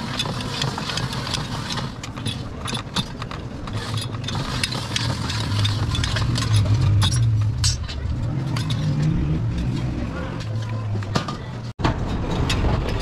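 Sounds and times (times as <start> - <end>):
steel sheet clicking in rollers: 0.0 - 11.1.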